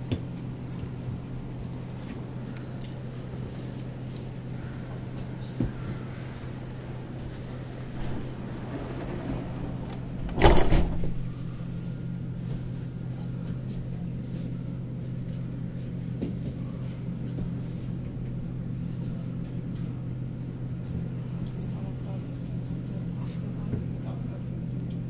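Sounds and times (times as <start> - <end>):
tram low hum: 0.0 - 25.0
tram door closing clunk: 5.2 - 11.5.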